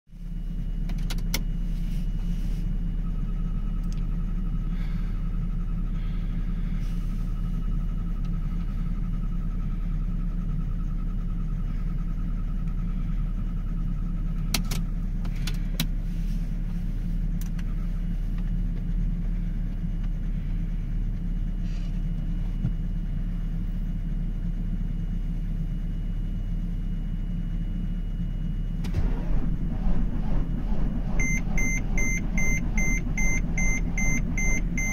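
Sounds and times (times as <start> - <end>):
diesel engine starter cranking: 28.8 - 34.9.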